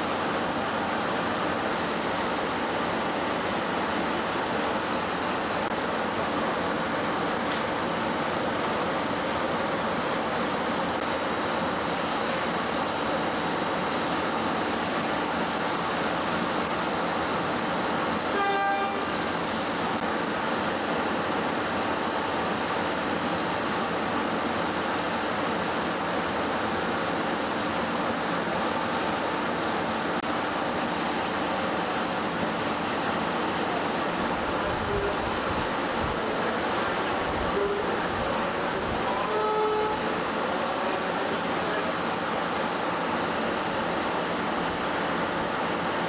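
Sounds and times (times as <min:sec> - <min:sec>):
railcar diesel engine running: 0:00.0 - 0:46.0
train horn toot: 0:18.3 - 0:19.4, 0:37.5 - 0:38.1, 0:39.1 - 0:40.2.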